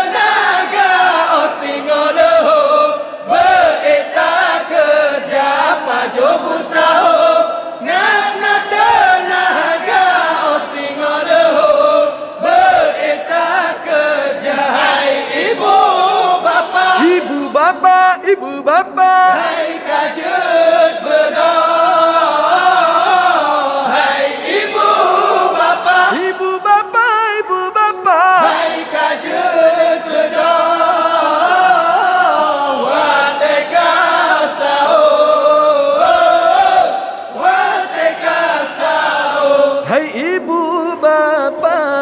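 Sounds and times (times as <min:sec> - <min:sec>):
men chanting a song: 0:00.0 - 0:26.8, 0:28.1 - 0:42.0
lead singer at microphone: 0:00.0 - 0:42.0.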